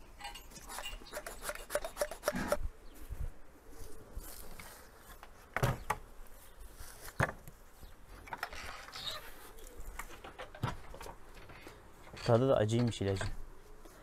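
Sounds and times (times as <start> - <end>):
rustling and shuffling in straw: 2.9 - 5.5, 6.1 - 8.1, 8.9 - 10.2.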